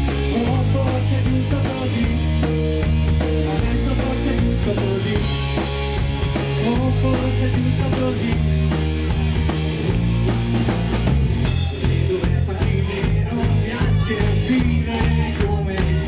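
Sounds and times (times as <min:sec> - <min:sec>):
drum kit beat: 0:00.0 - 0:16.0
electric bass low notes: 0:00.0 - 0:16.0.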